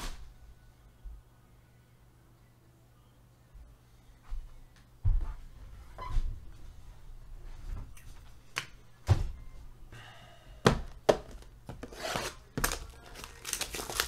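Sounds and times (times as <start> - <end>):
plastic wrap rustling: 11.8 - 14.0.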